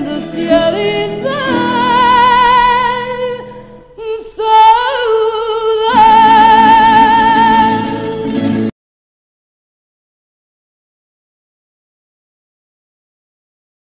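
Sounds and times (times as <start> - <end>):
musical accompaniment: 0.0 - 4.0, 5.6 - 8.7
person singing fado: 0.0 - 8.7.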